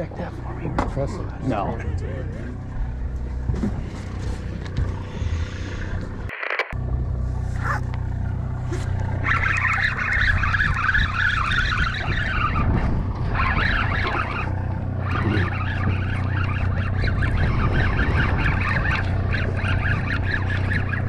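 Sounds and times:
boat engine humming: 0.0s - 21.0s
seabirds squawking: 7.6s - 7.9s, 8.5s - 21.0s.

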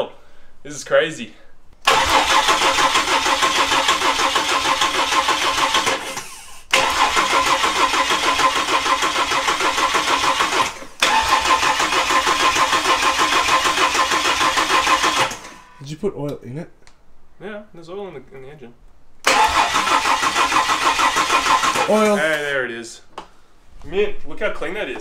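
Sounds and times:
engine cranking on starter motor: 1.8s - 15.8s, 19.2s - 22.1s.

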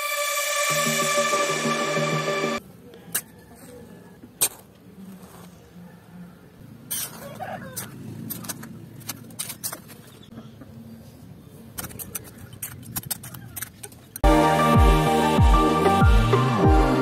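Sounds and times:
electronic music: 0.0s - 2.6s, 14.2s - 17.0s.

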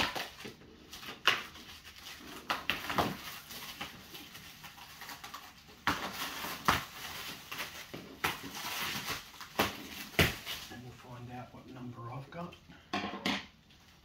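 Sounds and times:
plastic wrap crinkling and ripping: 0.0s - 12.2s.

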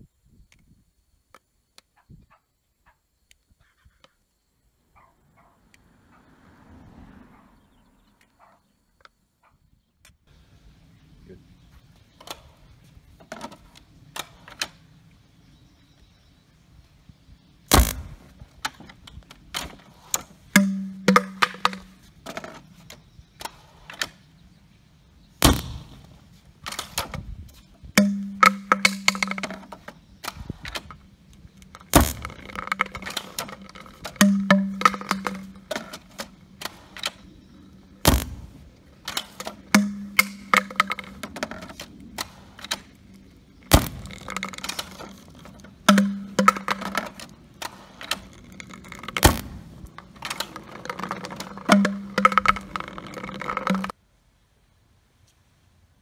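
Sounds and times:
plastic pipe clicking and knocking: 19.6s - 22.5s, 28.0s - 31.0s, 31.6s - 36.3s, 39.1s - 41.8s, 43.7s - 47.3s, 48.0s - 53.9s.

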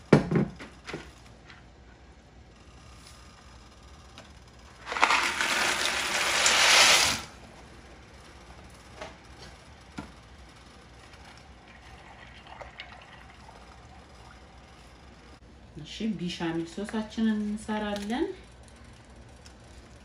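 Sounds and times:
dry pasta pouring into a pot: 4.8s - 7.3s.

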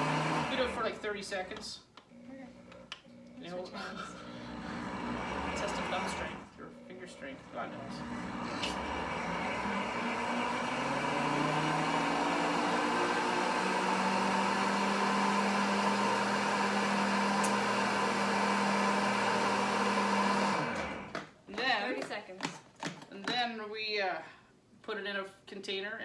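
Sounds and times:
blender motor running: 0.0s - 1.1s, 2.1s - 21.3s.

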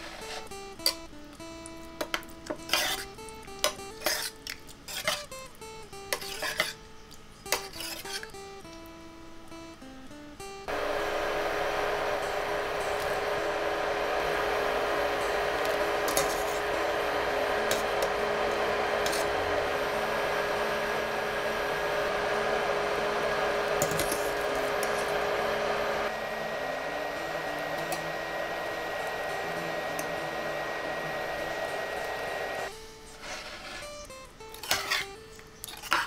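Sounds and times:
thin steady whine: 9.0s - 34.4s.

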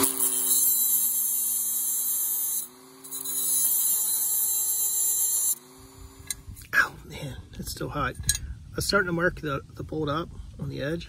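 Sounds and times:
rotary tool motor whine: 0.0s - 6.6s
cut-off wheel grinding metal: 0.0s - 6.7s.

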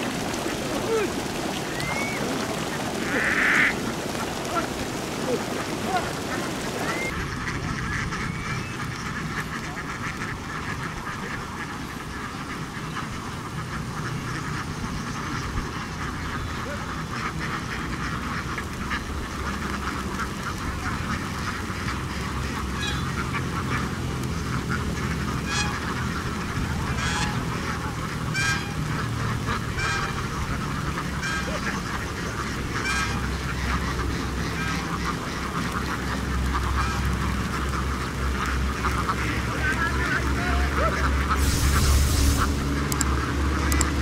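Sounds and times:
ducks quacking: 0.0s - 44.0s.

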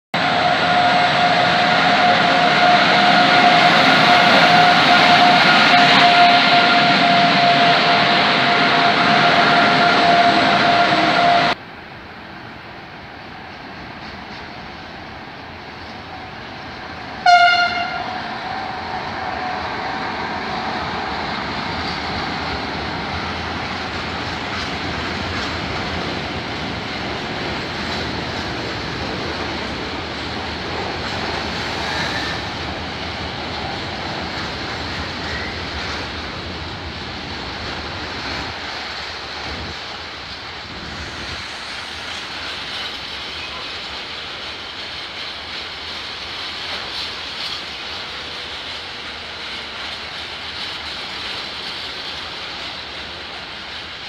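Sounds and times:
train wheels on rails: 0.1s - 54.0s
locomotive horn blast: 0.2s - 11.6s, 17.2s - 19.7s.

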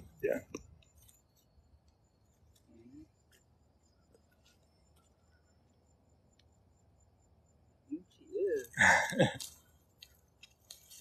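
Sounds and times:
soft ticks: 6.3s - 6.6s.

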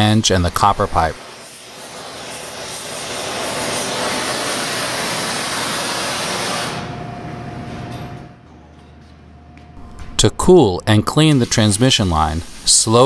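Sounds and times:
gas torch flame hissing: 0.0s - 6.9s, 11.1s - 13.0s.

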